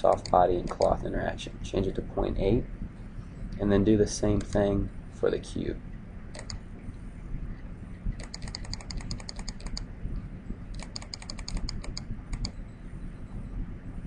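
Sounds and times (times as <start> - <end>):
computer mouse clicking: 0.0 - 1.0, 4.4 - 4.6, 6.3 - 6.6, 8.2 - 9.9, 10.7 - 12.6.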